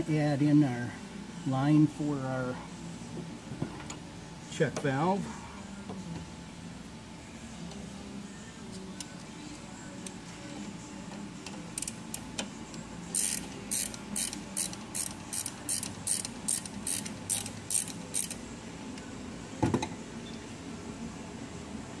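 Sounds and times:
ratchet wrench clicking: 0:11.7 - 0:12.2, 0:13.1 - 0:18.4.

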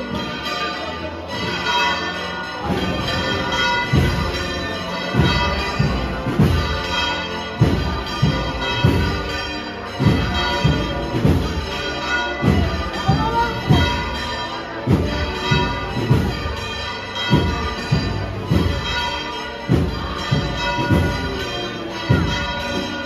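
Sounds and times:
wind band playing processional march: 0:02.6 - 0:22.9
low drum beats: 0:02.6 - 0:23.0.

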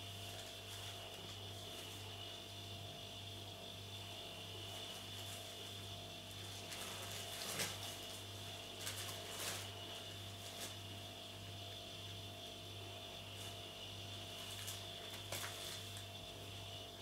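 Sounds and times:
plastic packaging crinkling: 0:06.3 - 0:10.8, 0:14.4 - 0:16.1.

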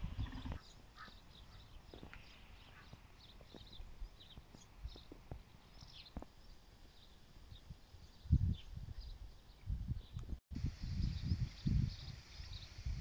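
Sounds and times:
distant bird chirps: 0:00.0 - 0:08.3.

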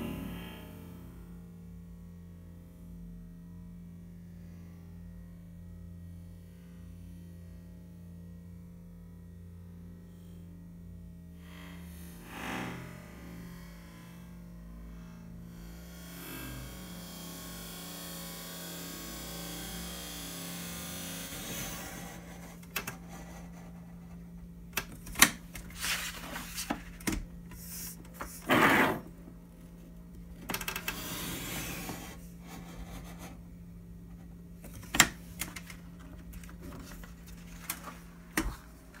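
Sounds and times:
steady low hum: 0:09.4 - 0:39.0.

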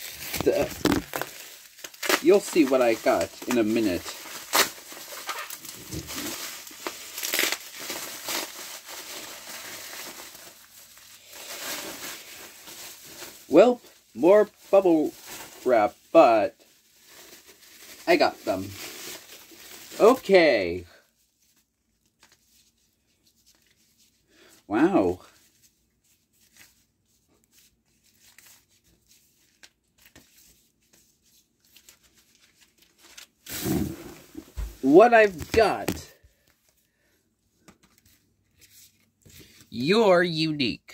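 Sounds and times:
packaging rustling: 0:00.0 - 0:16.0, 0:16.6 - 0:20.3, 0:31.6 - 0:36.7
bubble wrap crinkling: 0:00.0 - 0:24.2, 0:25.3 - 0:36.8.

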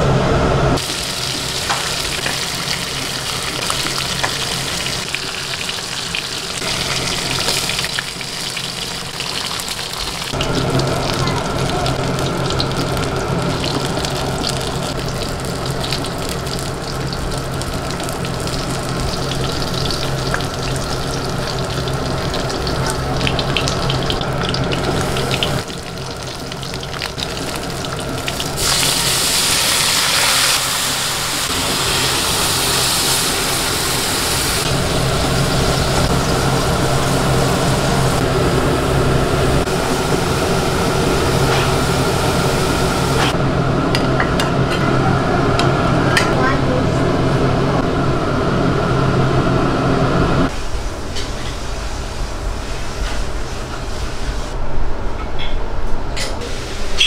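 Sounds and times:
steady low hum: 0:00.0 - 0:56.2
fish sizzling in oil: 0:00.8 - 0:43.4
bubbling simmer: 0:00.8 - 0:44.7
loud hiss: 0:28.6 - 0:39.0.

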